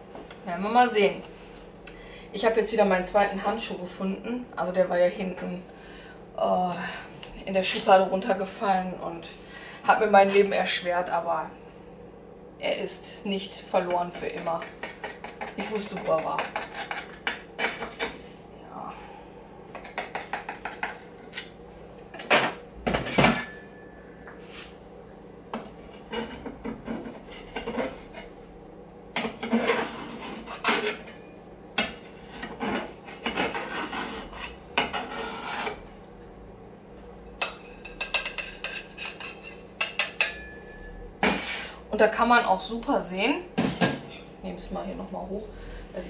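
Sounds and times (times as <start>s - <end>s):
metal server scraping baking dish: 25.8s - 28.3s, 29.2s - 35.8s, 37.5s - 40.5s.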